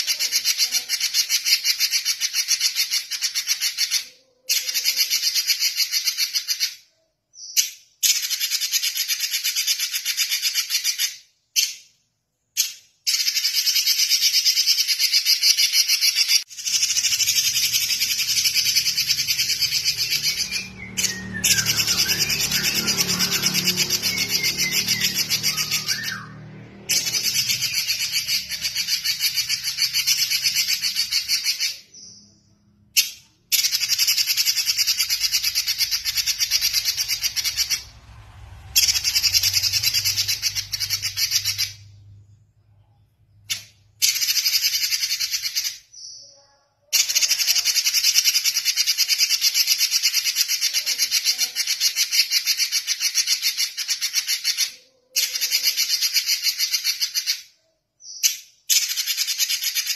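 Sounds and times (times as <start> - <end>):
bird singing fast high trills: 13.1 - 32.7.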